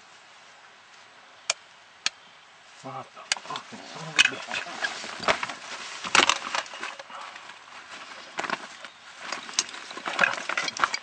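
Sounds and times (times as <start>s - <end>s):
irregular rustling: 2.6s - 11.0s.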